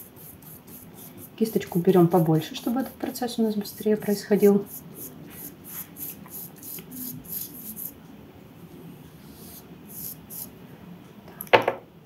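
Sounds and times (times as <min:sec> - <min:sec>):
paintbrush swishing on paper: 0:00.0 - 0:07.9, 0:09.1 - 0:10.5.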